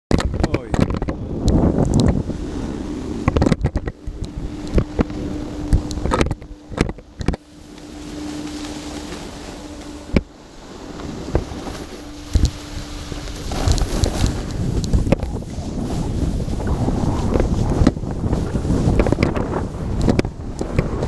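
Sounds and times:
sharp knocks and clicks: 0:00.1 - 0:02.2, 0:03.2 - 0:07.4
wind rushing over microphone: 0:00.1 - 0:21.0
faint steady hum: 0:00.4 - 0:21.0
snowboard sliding over snow: 0:07.4 - 0:21.0.

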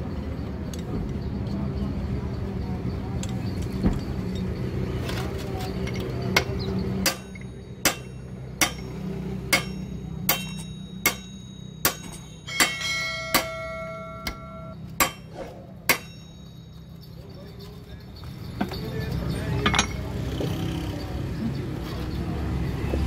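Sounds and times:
hammer striking metal: 0:06.3 - 0:16.8.

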